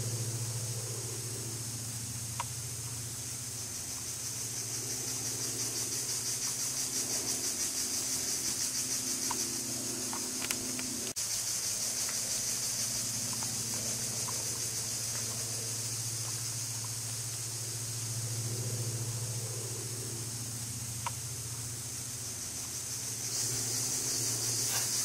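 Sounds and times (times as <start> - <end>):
insect chorus: 0.0 - 25.0
low steady hum: 0.0 - 25.0.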